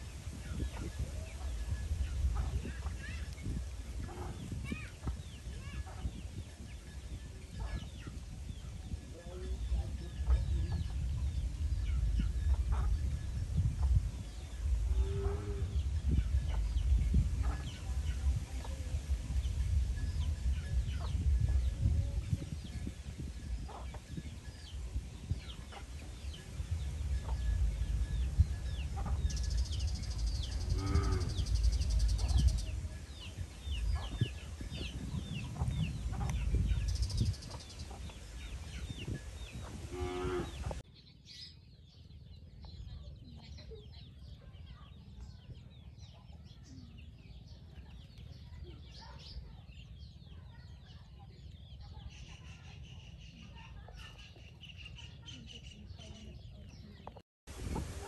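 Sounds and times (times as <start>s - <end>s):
steady low rumble: 0.0s - 40.8s
chicks peeping: 0.2s - 24.6s, 25.2s - 40.8s.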